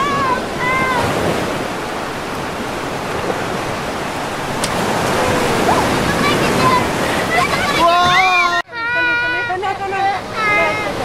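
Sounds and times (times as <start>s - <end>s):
child's voice: 0.0s - 1.1s, 5.7s - 9.5s, 10.2s - 11.0s
waves breaking: 0.0s - 11.0s.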